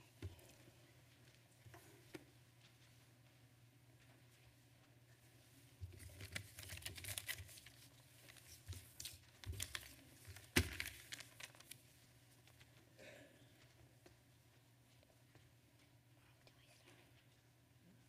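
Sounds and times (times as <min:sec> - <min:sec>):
rustling handling noises: 0:05.3 - 0:12.9.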